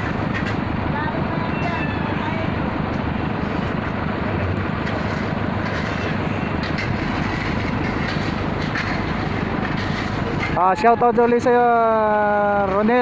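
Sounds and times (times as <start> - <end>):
diesel truck engine idling: 0.0 - 13.0
shovels scraping into gravel: 4.8 - 10.6.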